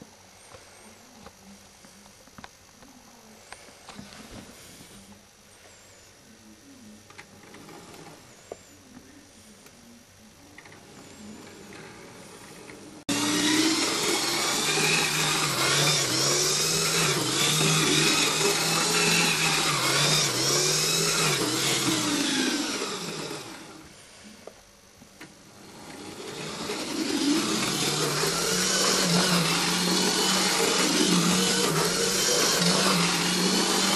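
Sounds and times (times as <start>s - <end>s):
model train motor whirring: 7.1s - 8.6s, 10.5s - 24.1s, 25.2s - 33.9s.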